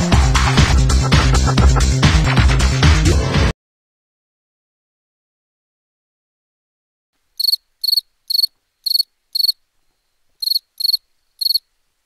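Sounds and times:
cricket chirping: 7.4s - 11.8s.

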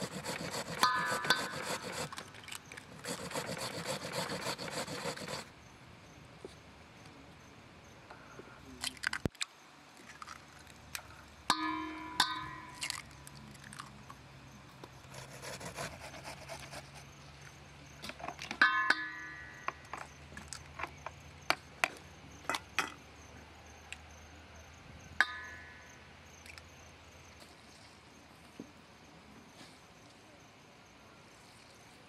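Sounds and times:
metallic strikes on steel bowl: 11.5s - 12.8s, 18.6s - 19.7s, 25.2s - 25.8s.

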